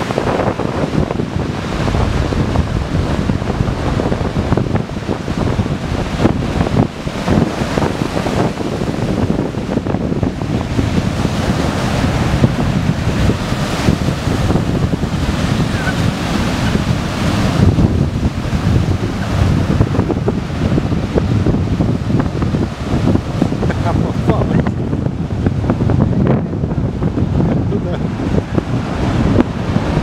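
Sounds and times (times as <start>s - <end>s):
ocean surf breaking: 0.0s - 30.0s
wind buffeting the microphone: 0.0s - 30.0s.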